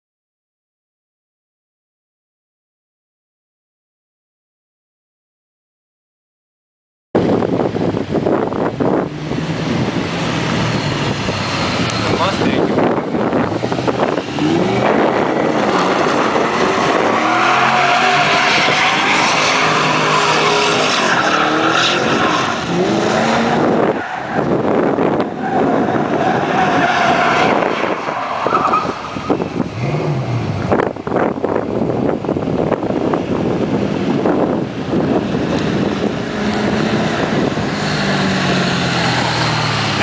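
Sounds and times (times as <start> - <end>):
car engine revving hard: 8.2 - 31.3, 32.5 - 40.0
tyres spinning and squealing: 9.2 - 30.2, 34.9 - 40.0.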